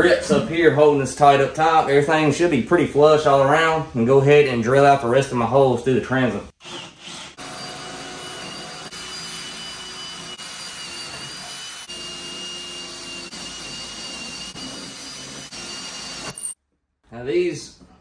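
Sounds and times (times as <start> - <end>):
cordless drill whining: 6.6 - 16.6.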